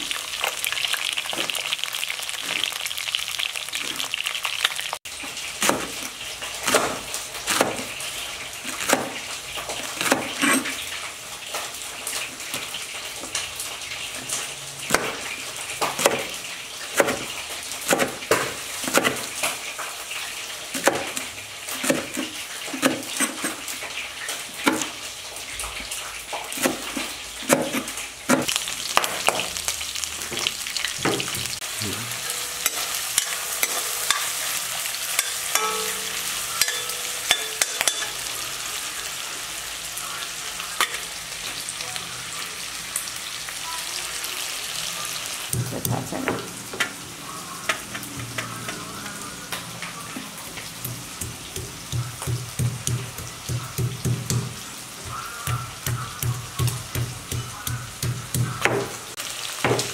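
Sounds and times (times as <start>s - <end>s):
food sizzling in a pan: 0.0s - 59.9s
knife chopping on cutting board: 17.0s - 17.3s.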